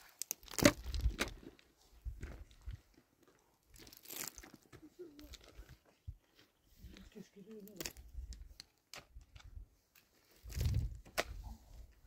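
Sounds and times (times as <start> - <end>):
crunching and rustling: 0.0 - 5.8.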